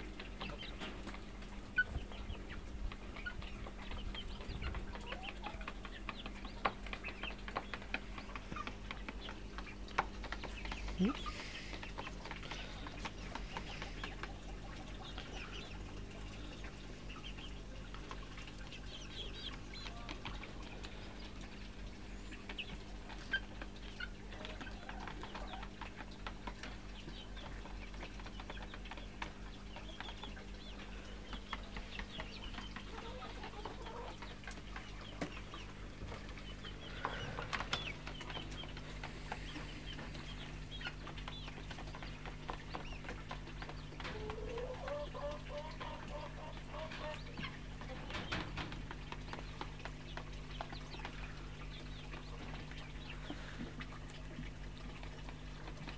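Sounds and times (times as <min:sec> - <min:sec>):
hens clucking softly: 0:00.0 - 0:55.9.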